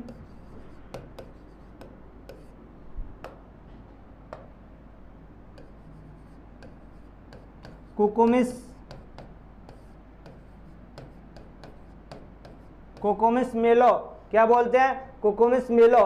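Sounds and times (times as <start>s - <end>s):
stylus tapping on display board: 0.0s - 3.5s, 4.2s - 4.6s, 5.5s - 13.2s.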